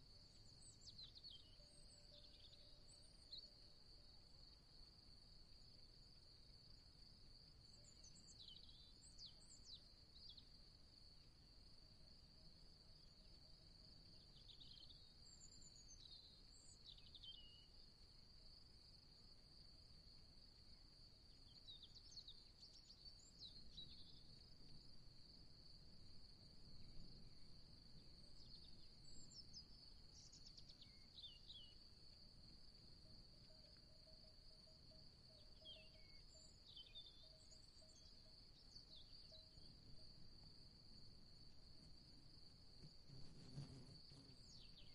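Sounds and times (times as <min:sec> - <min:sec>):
bird chirps: 0:34.9 - 0:39.7.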